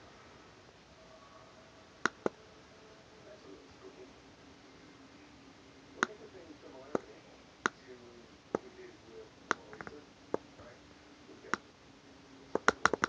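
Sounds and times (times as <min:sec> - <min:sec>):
computer mouse clicking: 0:09.5 - 0:10.5, 0:12.5 - 0:13.0.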